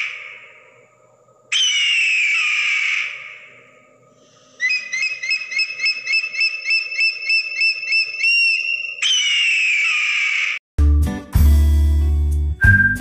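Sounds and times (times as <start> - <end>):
eagle piping chirps: 4.2 - 10.5.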